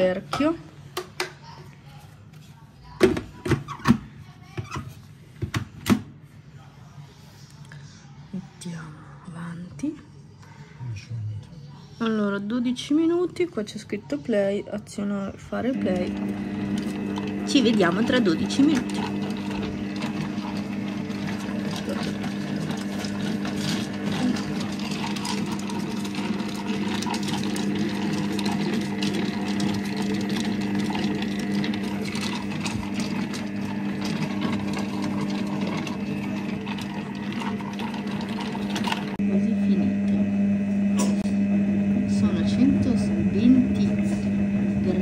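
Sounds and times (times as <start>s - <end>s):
cooking machine motor humming: 11.5s - 45.0s.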